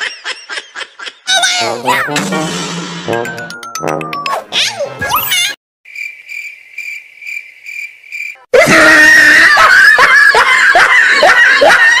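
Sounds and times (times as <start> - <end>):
high cricket-like chirp: 5.9 - 8.4
screaming sound effect with yelps: 8.5 - 10.3.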